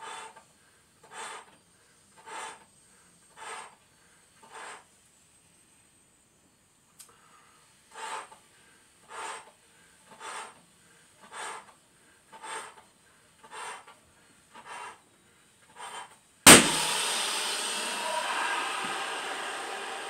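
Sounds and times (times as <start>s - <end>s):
balloon bursting bang: 16.5s - 20.0s.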